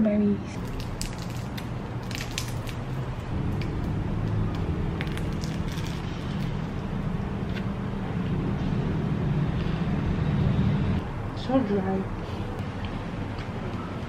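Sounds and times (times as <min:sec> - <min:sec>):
steady low hum: 0:00.0 - 0:14.0
bread roll crunching: 0:00.5 - 0:06.8.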